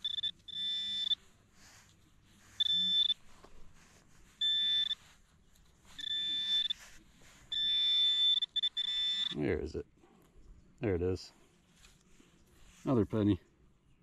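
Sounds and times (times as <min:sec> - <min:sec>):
metal detector beeping: 0:00.0 - 0:03.3, 0:04.3 - 0:05.2, 0:05.8 - 0:09.4
sand scraping: 0:00.8 - 0:08.5.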